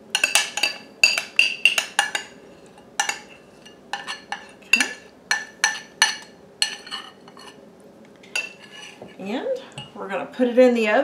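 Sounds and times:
metal spoon scraping glass bowl: 0:00.2 - 0:07.6, 0:08.4 - 0:09.0.

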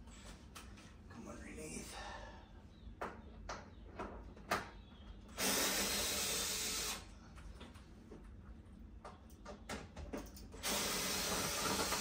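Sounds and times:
electric screwdriver running: 0:10.6 - 0:12.0.

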